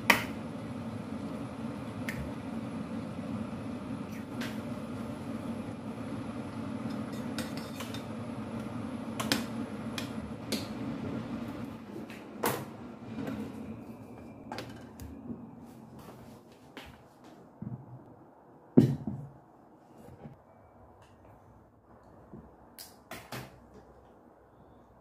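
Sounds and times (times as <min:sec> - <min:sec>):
gas stove rushing: 0:00.0 - 0:15.3.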